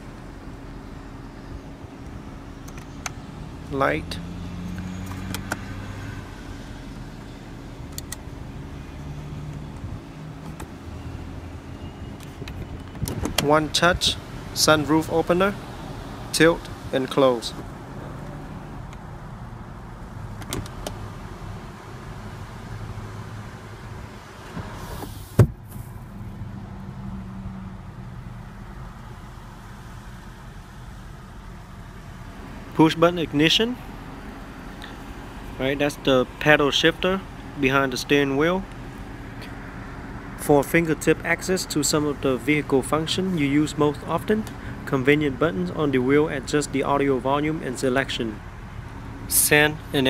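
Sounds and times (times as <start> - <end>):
sunroof thumping shut: 24.5 - 25.8.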